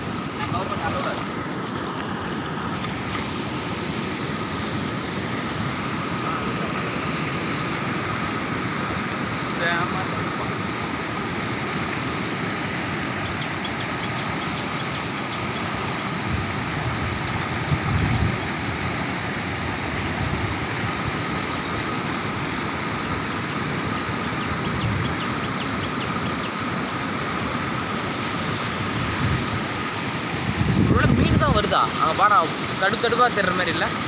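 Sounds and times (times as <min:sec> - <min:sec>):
river water rushing: 0:00.0 - 0:34.0
wind buffeting microphone: 0:15.8 - 0:25.9, 0:28.4 - 0:31.8.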